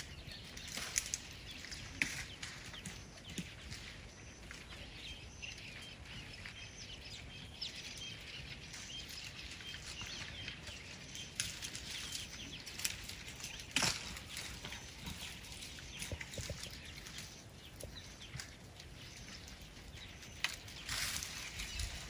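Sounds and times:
small birds chirping: 0.0 - 22.0
sharp crack: 13.6 - 14.4.

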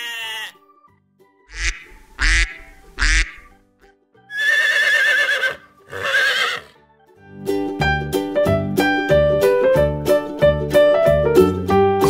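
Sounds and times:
duck quacking: 1.5 - 3.5
piano music: 6.8 - 12.0.

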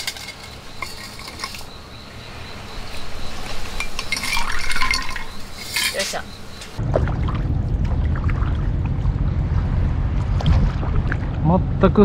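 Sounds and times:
ice clinking: 0.0 - 6.8
water pouring into a mug: 4.1 - 5.4.

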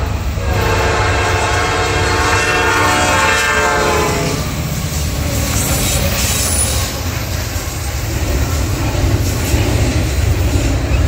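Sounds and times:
freight train rumbling past: 0.0 - 11.0
steel wheels on rails: 0.0 - 11.0.

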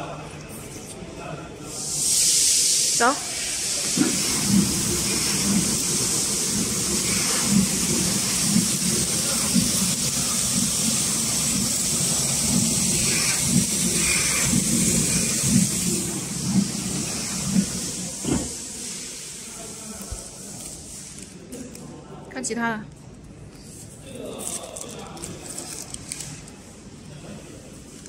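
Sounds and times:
packaging machine hissing: 1.7 - 21.2
machine thumping: 4.0 - 18.6.

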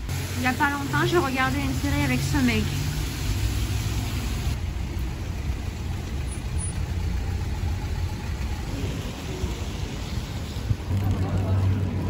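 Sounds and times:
hiss: 0.0 - 4.6
low rumble: 1.2 - 12.0.

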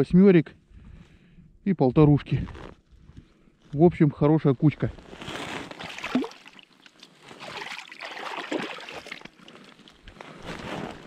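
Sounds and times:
hands splashing in water: 5.8 - 6.8, 7.4 - 9.5.

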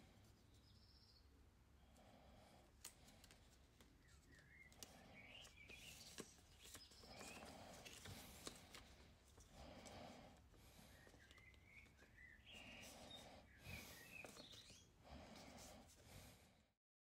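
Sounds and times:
paper rustling and crinkling: 2.8 - 9.9, 12.8 - 14.8.

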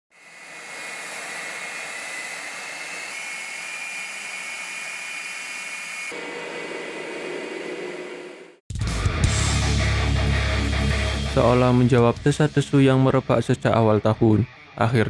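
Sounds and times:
deep jet engine whine: 0.1 - 8.6
jet engine high whine: 0.1 - 8.6
jet engines rushing: 0.1 - 8.6.

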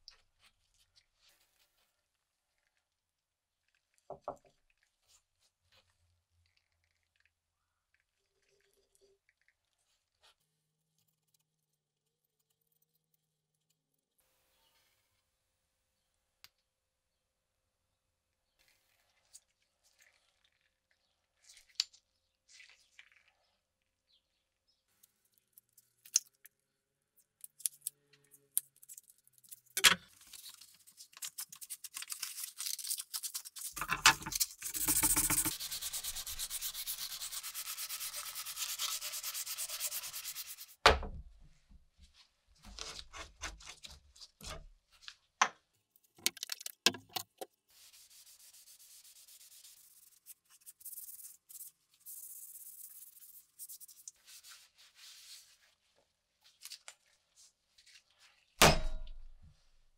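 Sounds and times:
hand rubbing wooden handle: 34.6 - 40.6.

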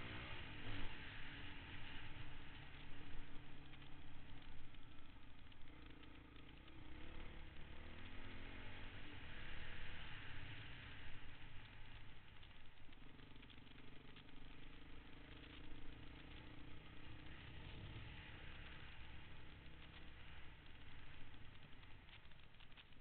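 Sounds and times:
dirt bike engine running: 0.0 - 23.0
small rattles: 11.1 - 23.0.

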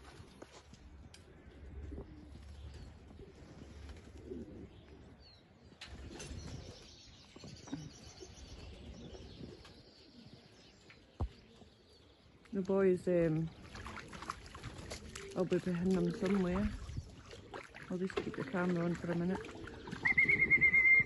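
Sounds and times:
pigeons cooing: 1.2 - 6.8, 19.3 - 21.0.

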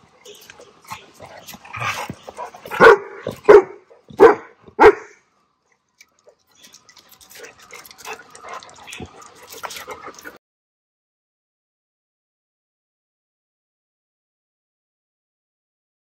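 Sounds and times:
dog barking: 1.8 - 5.2
quiet dog sounds: 6.0 - 10.4.

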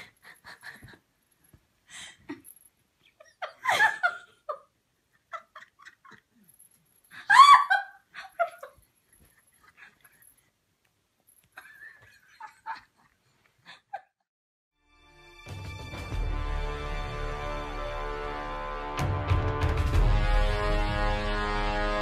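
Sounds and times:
person laughing and giggling: 0.0 - 1.0, 1.9 - 10.3, 11.6 - 14.3.

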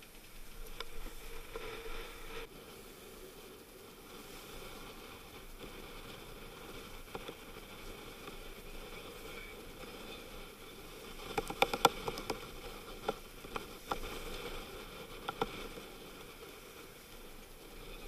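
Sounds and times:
sharp clicks and knocks: 11.3 - 12.4.

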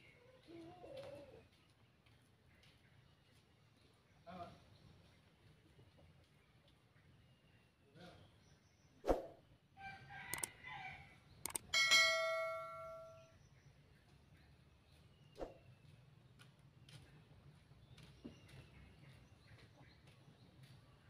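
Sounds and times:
sharp clicks: 10.3 - 10.5, 11.4 - 11.7
bell-like metallic ring: 11.7 - 13.3.

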